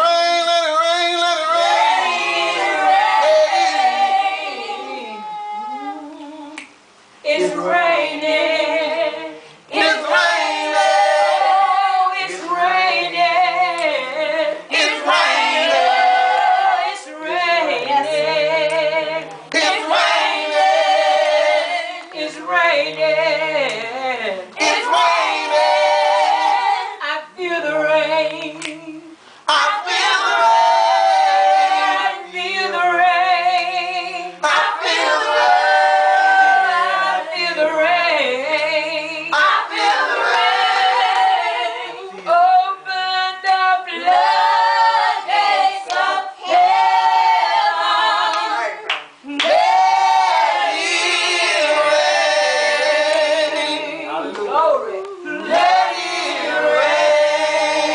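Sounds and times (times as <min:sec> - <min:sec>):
group of women singing a cappella: 0:01.5 - 0:57.9
sharp hand clap: 0:48.3 - 0:49.6.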